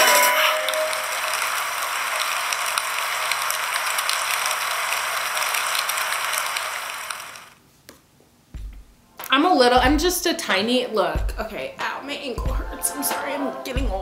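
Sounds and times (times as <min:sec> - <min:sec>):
rain pattering: 0:00.4 - 0:07.6.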